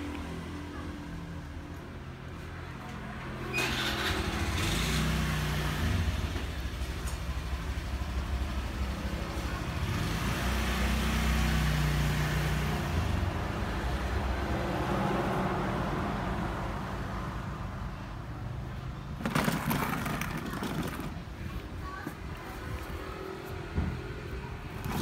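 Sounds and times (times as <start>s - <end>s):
vehicle engine passing by: 3.3s - 6.8s, 8.9s - 17.4s.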